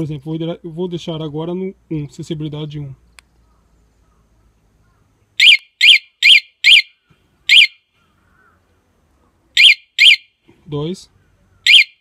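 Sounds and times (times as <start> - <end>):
motorcycle alarm siren chirps: 5.4 - 7.9, 9.6 - 10.4, 11.6 - 12.0.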